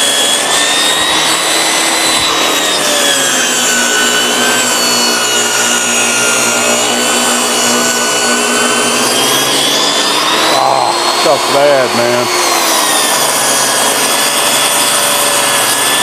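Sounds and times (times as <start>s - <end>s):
table saw ripping a board: 0.0s - 16.0s.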